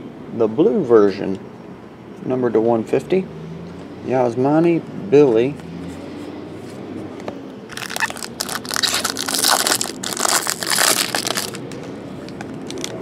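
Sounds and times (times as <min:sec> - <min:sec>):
foil wrapper crinkling: 0:07.7 - 0:13.0.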